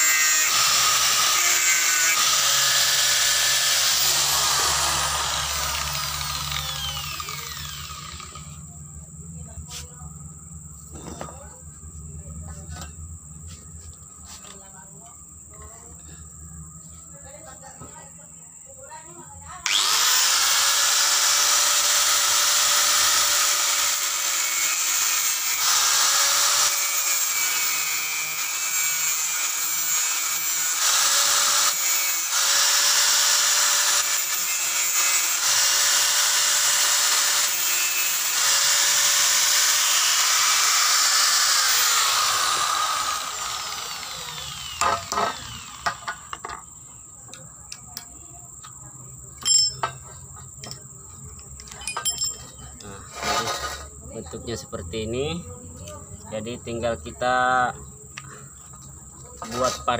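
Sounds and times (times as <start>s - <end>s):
angle grinder cutting metal pipe: 0.0s - 8.6s, 19.6s - 46.4s, 53.0s - 53.9s
light metallic clinks: 49.4s - 52.9s.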